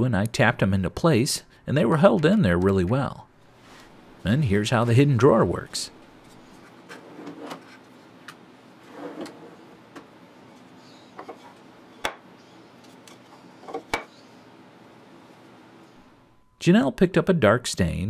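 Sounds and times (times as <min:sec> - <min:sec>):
wooden drawer sliding and rubbing: 0:06.9 - 0:07.8, 0:08.8 - 0:09.8.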